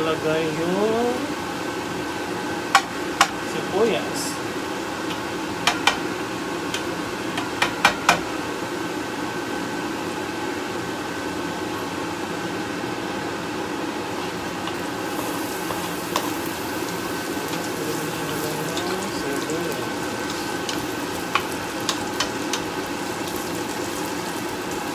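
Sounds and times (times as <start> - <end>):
garlic sizzling in oil: 14.0 - 24.9.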